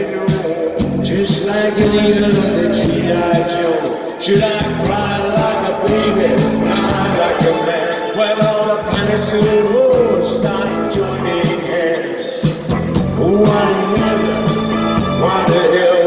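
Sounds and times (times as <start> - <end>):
drums keeping a steady beat: 0.0 - 16.0
live rock band playing: 0.0 - 16.0.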